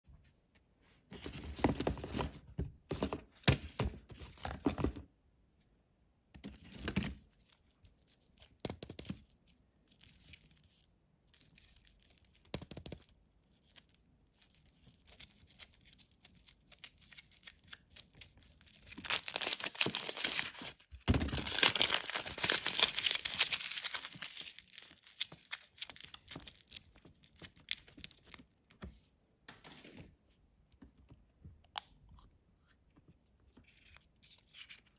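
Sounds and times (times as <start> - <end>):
foil wrapper crinkling and tearing: 13.6 - 28.5.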